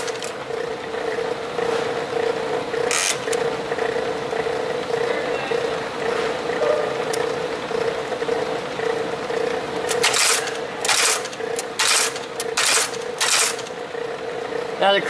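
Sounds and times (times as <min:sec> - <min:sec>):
machine motor humming: 0:00.0 - 0:15.0
metal stamping strokes: 0:09.4 - 0:13.8.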